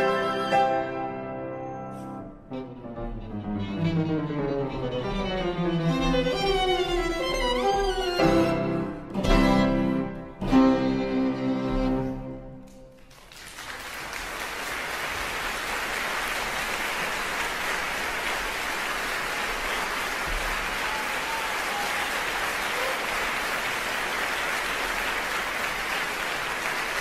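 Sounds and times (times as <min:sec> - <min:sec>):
audience applauding: 0:12.6 - 0:27.0.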